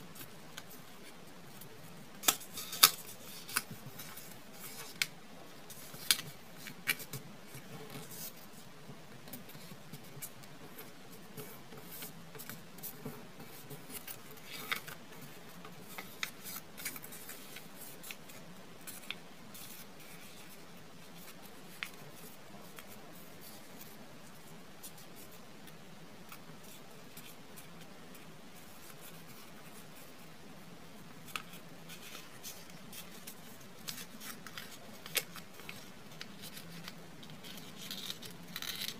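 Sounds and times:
paper folding and crackling: 0:00.1 - 0:30.2, 0:31.2 - 0:38.9.

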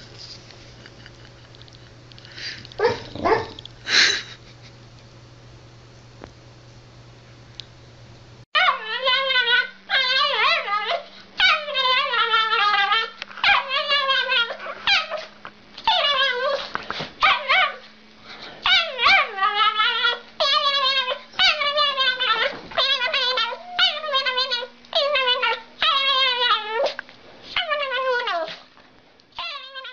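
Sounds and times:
dog howling: 0:02.8 - 0:03.6, 0:08.6 - 0:15.3, 0:15.9 - 0:16.6, 0:18.6 - 0:27.0, 0:27.6 - 0:28.5, 0:29.4 - 0:29.9.

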